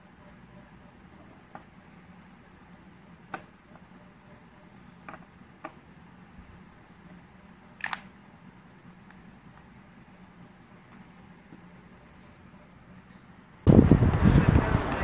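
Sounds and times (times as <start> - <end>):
faint steady hum: 0.0 - 15.0
earbuds clicking into case: 7.8 - 8.2.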